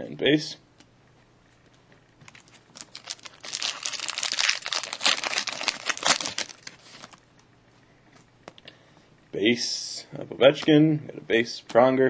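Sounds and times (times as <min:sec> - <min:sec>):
foil wrapper crinkling: 0:02.3 - 0:07.2.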